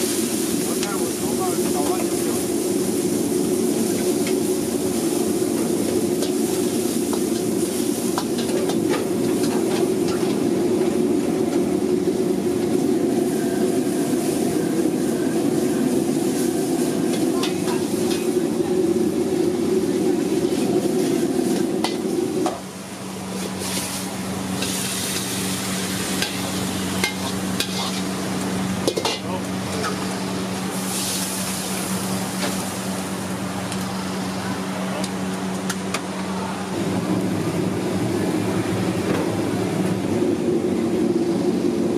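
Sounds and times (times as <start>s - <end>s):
food sizzling: 0.0s - 34.7s
gas burner roaring: 0.0s - 41.9s
steel ladle scraping wok: 24.6s - 28.2s.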